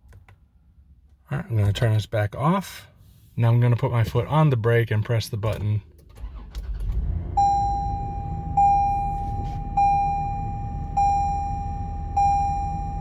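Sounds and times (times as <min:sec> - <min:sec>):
car engine idling: 0:06.1 - 0:12.9
dashboard warning chime: 0:07.3 - 0:13.0.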